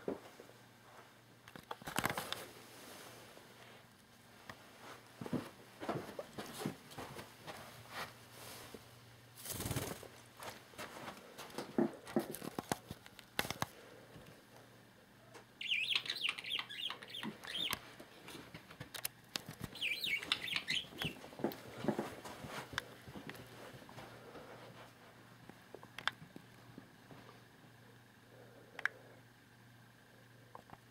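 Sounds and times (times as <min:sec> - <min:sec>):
budgie wings flapping: 0:09.4 - 0:10.2
budgie chattering chirps: 0:15.6 - 0:17.8, 0:19.7 - 0:21.2.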